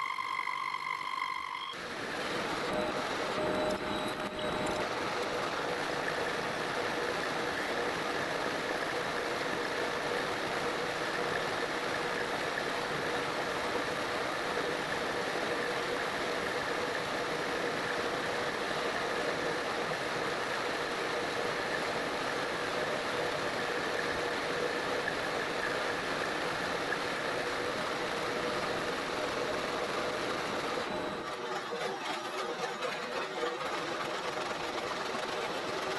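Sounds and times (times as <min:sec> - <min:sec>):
metal lathe hum and whine: 0:00.0 - 0:08.0.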